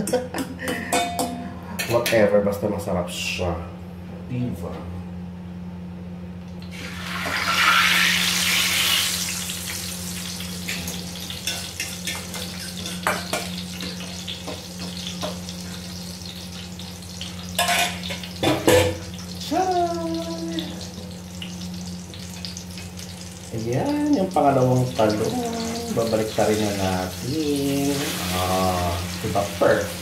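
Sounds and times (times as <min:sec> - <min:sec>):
hot oil sizzling in a frying pan: 0:06.6 - 0:30.0.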